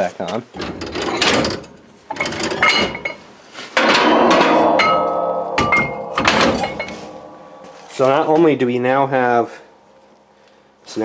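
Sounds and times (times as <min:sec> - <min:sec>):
metal knocks and clinks: 0:00.6 - 0:03.2, 0:03.8 - 0:08.5
metal scraping clatter: 0:00.6 - 0:08.4.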